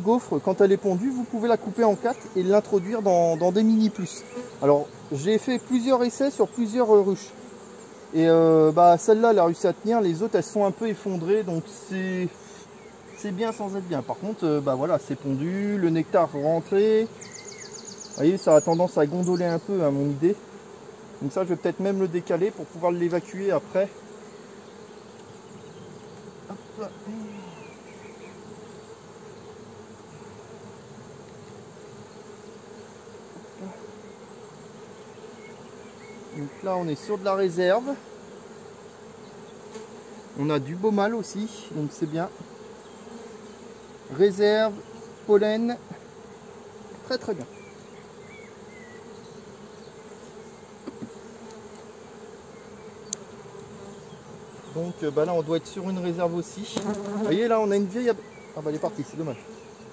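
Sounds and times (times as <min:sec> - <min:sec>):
bees buzzing: 0:00.0 - 0:59.9
faint knocks: 0:50.8 - 0:51.2.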